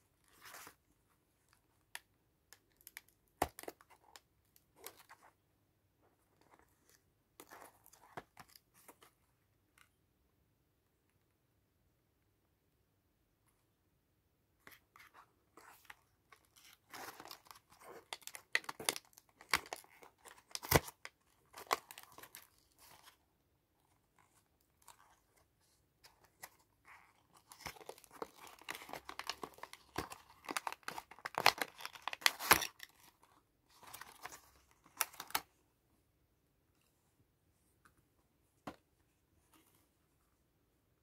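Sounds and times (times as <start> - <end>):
packaging crackling and tearing: 27.4 - 33.1.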